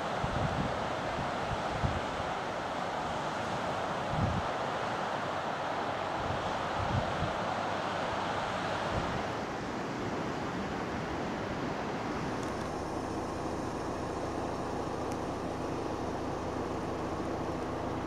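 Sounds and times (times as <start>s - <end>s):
wind on microphone: 0.0s - 5.3s, 5.9s - 18.0s
low vehicle drone: 12.2s - 18.0s.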